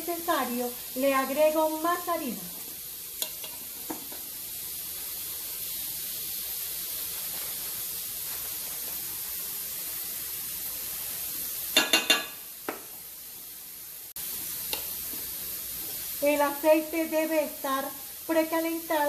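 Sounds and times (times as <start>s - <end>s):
steady hiss: 0.0s - 19.0s
metal spoon clinking kitchenware: 11.8s - 12.4s.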